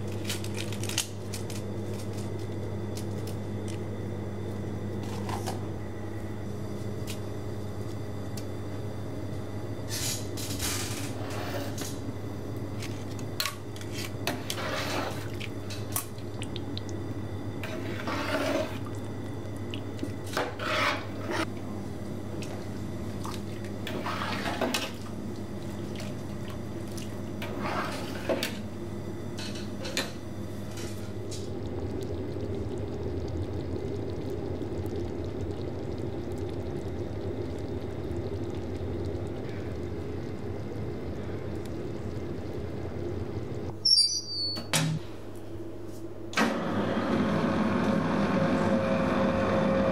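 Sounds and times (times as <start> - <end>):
sauce simmering: 31.0 - 43.7.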